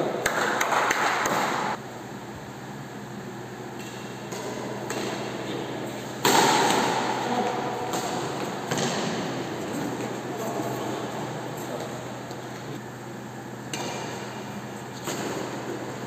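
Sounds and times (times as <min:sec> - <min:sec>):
badminton rackets hitting shuttlecock: 0:00.2 - 0:01.7, 0:03.7 - 0:10.2, 0:13.7 - 0:14.4.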